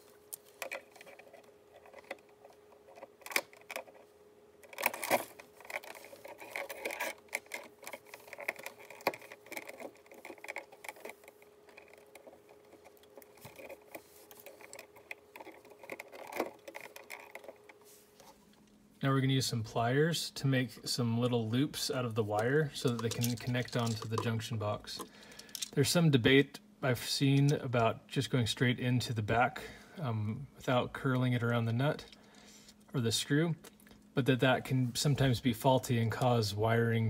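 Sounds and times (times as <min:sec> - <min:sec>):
copper wire rustling: 0:00.0 - 0:18.8, 0:22.2 - 0:25.8
wire strippers clicking: 0:00.3 - 0:04.0, 0:04.6 - 0:17.8.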